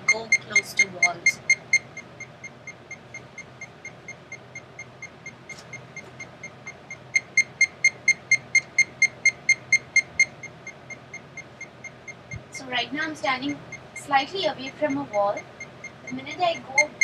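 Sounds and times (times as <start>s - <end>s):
high-pitched electronic beeps: 0.0s - 5.1s, 13.4s - 17.0s.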